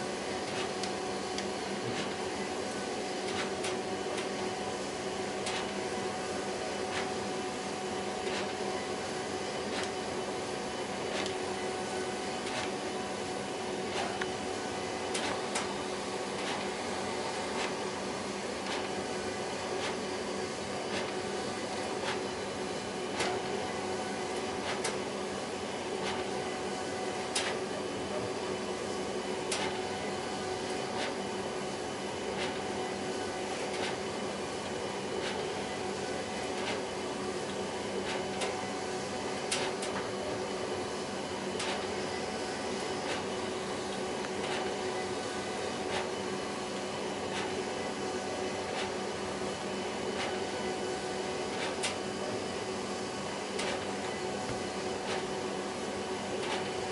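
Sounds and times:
printer whirring and humming: 0.0 - 56.9
printer sharp clicks: 5.4 - 5.7, 15.1 - 15.7, 24.4 - 25.0, 27.3 - 27.6, 29.5 - 29.8, 39.5 - 40.1, 53.6 - 53.9.

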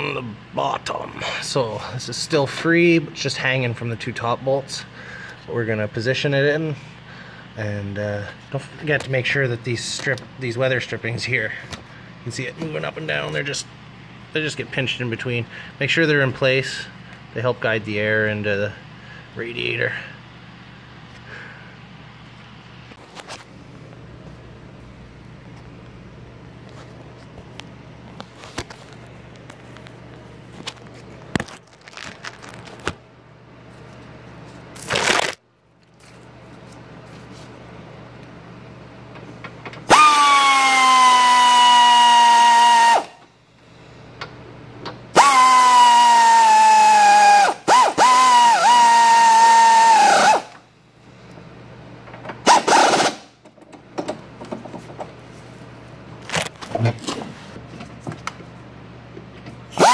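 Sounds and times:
electric ratchet motor whine: 39.9 - 43.2, 45.2 - 50.6, 52.5 - 53.2.

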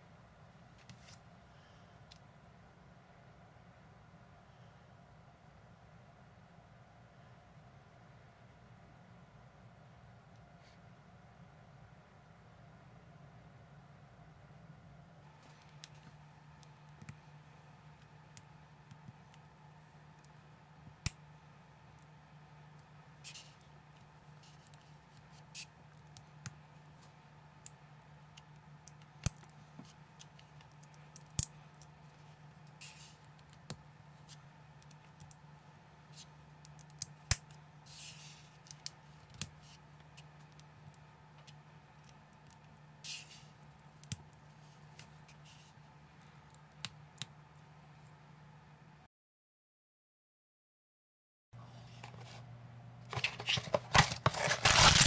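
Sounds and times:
low steady hum: 0.0 - 49.1, 51.6 - 55.0
plastic pieces rasping: 53.1 - 55.0.

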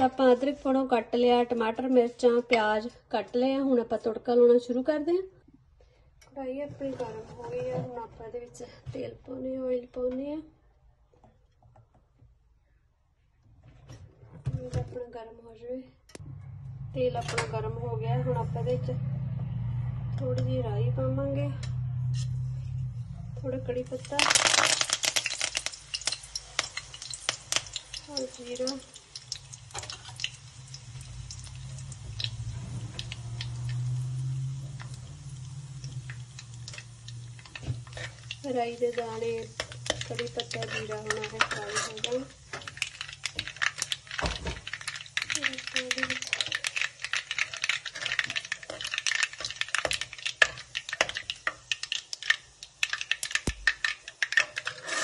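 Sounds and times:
seeds popping in hot oil: 23.8 - 55.0
steel ladle stirring: 35.8 - 55.0.

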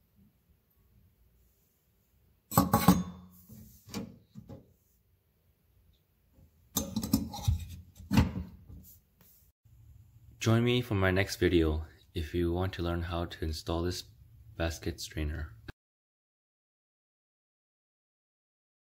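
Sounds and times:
metal sink strainer clinking: 6.8 - 7.6.

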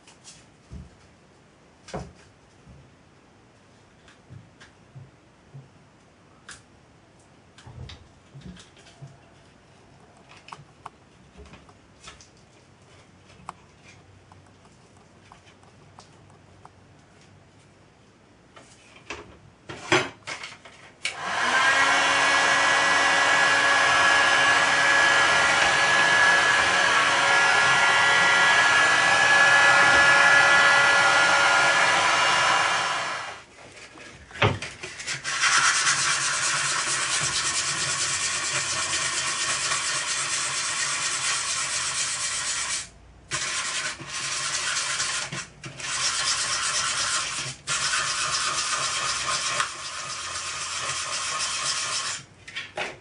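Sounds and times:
small electric power tool running: 21.1 - 33.4
sandpaper rubbing sheet metal: 34.9 - 52.2.

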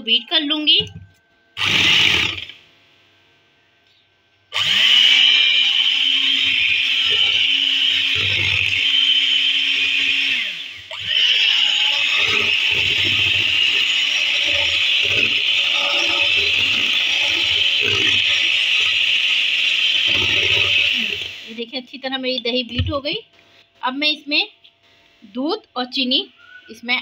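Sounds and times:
electric hand mixer whine: 1.6 - 2.6, 4.5 - 21.6.

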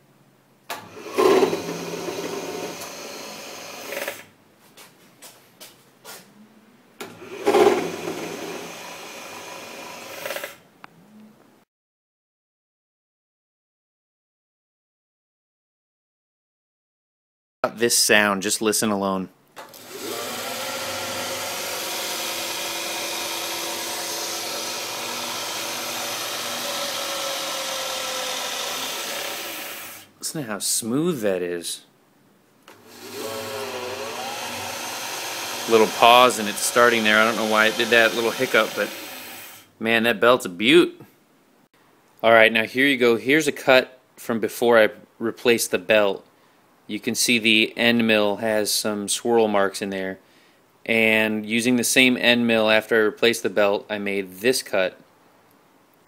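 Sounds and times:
milling machine motor running: 1.0 - 4.2, 7.2 - 10.5, 19.7 - 30.0, 32.8 - 39.6.

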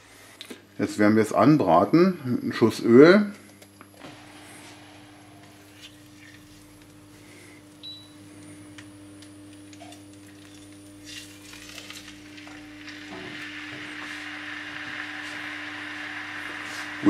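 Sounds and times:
oil sizzling under meat: 11.0 - 17.0.

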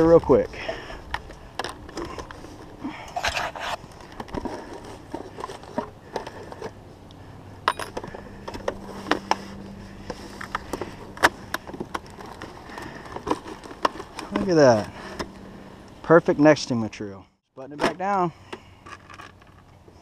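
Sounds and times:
metallic clicks and scrapes: 1.1 - 6.8.

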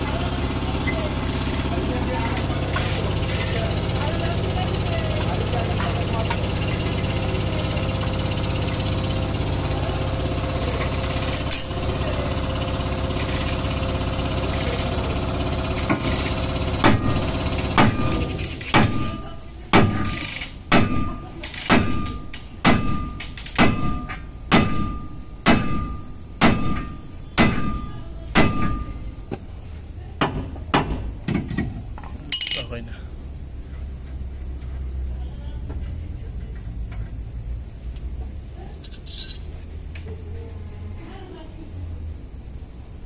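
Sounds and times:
machine drone: 0.0 - 19.3
hammer striking metal: 16.8 - 29.0.

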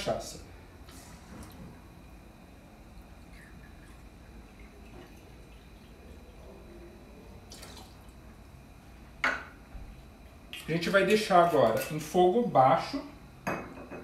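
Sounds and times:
liquid trickling and dripping: 2.9 - 8.3.

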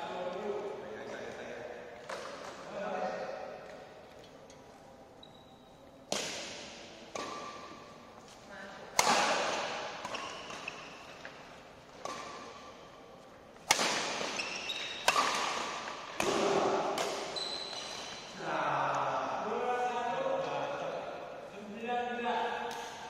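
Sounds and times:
rackets striking shuttlecock: 6.1 - 8.0, 8.9 - 12.8, 13.6 - 18.2, 22.7 - 23.0
players' voices: 18.3 - 22.9.

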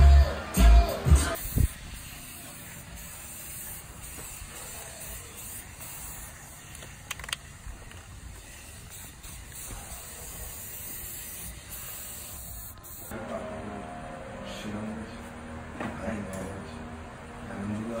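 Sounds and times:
spray paint can hissing: 1.3 - 13.1.

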